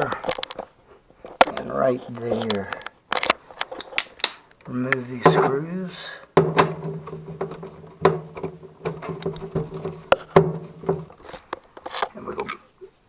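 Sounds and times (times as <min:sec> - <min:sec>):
metallic clicks and knocks: 0:06.4 - 0:11.2.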